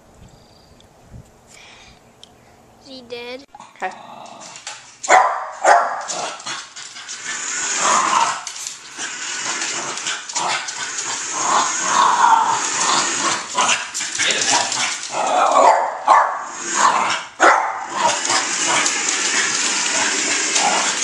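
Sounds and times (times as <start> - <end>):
dog growling: 3.6 - 4.8, 6.0 - 21.0
small dog barking: 5.1 - 6.1, 15.6 - 16.4, 17.4 - 17.9.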